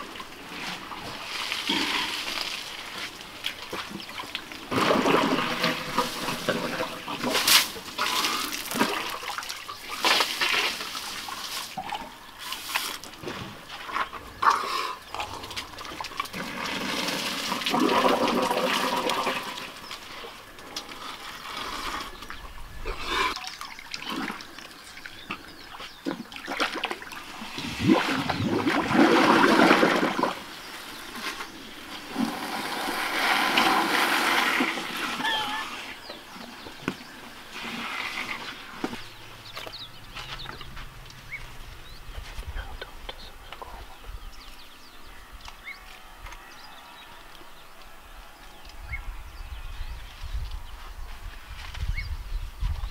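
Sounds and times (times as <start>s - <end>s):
water splashing and dribbling: 0.0s - 22.4s, 23.3s - 40.7s
elephants drinking water: 0.0s - 44.8s.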